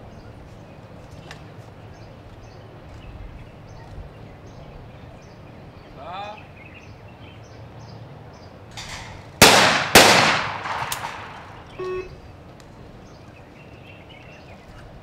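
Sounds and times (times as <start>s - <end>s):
shotgun shots echoing: 8.8s - 11.8s
short beep: 11.7s - 12.2s.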